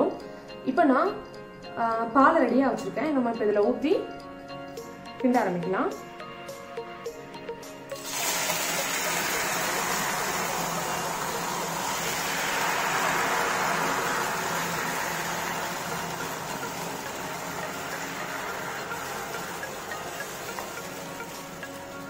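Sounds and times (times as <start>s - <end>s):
liquid sizzling in hot pan: 7.9s - 22.0s.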